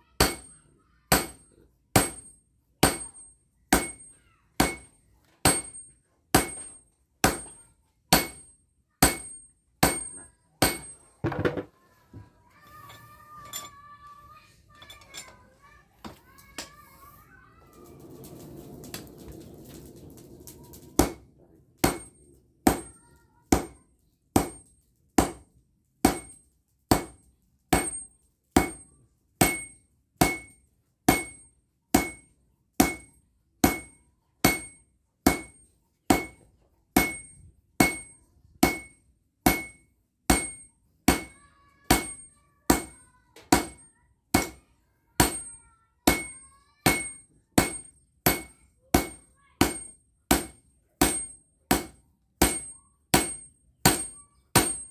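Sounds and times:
sledgehammer ringing on anvil: 0:00.2 - 0:11.1, 0:21.8 - 0:23.8, 0:26.0 - 0:36.4, 0:37.0 - 0:44.6, 0:45.2 - 0:54.9.

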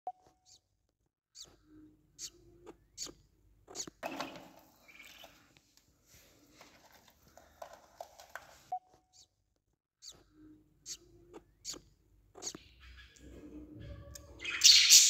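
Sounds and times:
budgerigars chirping: 0:02.2 - 0:02.4, 0:03.0 - 0:05.4, 0:12.4 - 0:13.3, 0:14.2 - 0:15.0.

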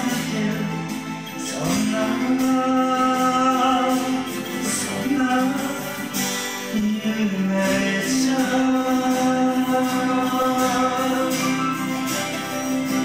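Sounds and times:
man singing: 0:00.0 - 0:13.0
strummed acoustic guitar: 0:00.0 - 0:13.0.

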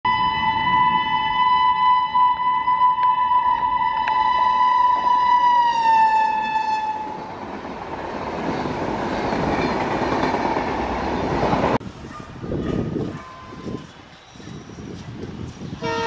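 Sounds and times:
train horn blast: 0:00.1 - 0:07.3, 0:15.8 - 0:16.0
train coaches running on rails: 0:03.0 - 0:16.0.

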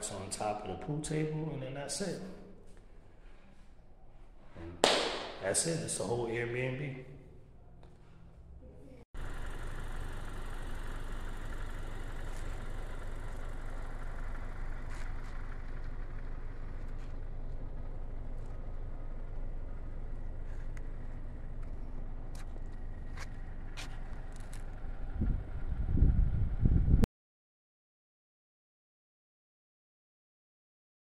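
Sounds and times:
outdoor low rumble: 0:07.1 - 0:27.1.

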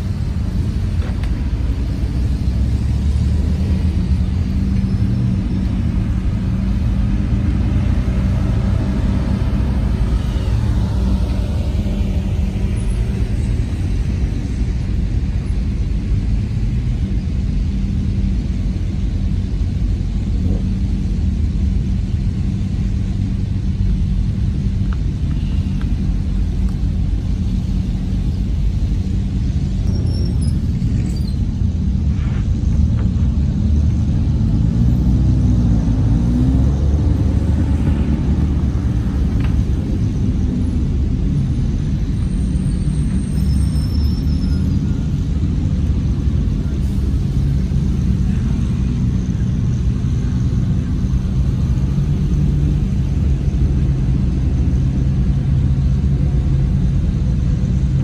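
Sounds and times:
car engines droning: 0:00.0 - 0:58.0
engine revving: 0:33.3 - 0:39.7.

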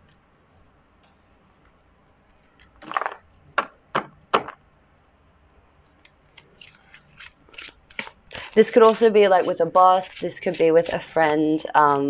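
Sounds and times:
cards rustling: 0:06.0 - 0:11.2.

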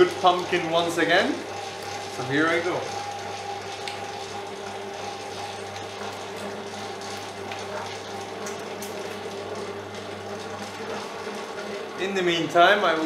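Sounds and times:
dough mixer motor humming: 0:00.0 - 0:13.0.

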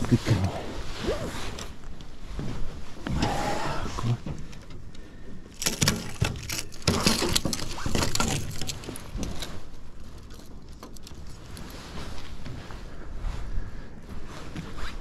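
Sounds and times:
clothing rustling: 0:06.4 - 0:15.0.

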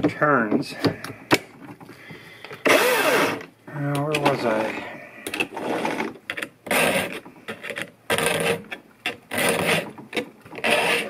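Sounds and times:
file rasping on chainsaw chain: 0:06.7 - 0:08.7, 0:09.3 - 0:10.0, 0:10.6 - 0:11.0.

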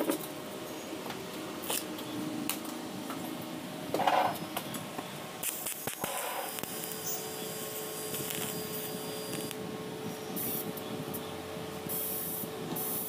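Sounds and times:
welding arc hissing: 0:05.4 - 0:09.6, 0:10.4 - 0:10.8, 0:11.9 - 0:13.0.

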